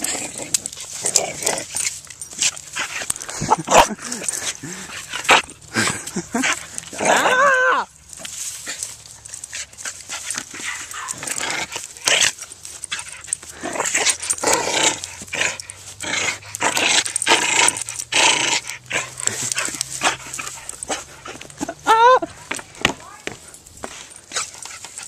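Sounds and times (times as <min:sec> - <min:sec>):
dogs snuffling and scuffling: 0:00.0 - 0:25.0.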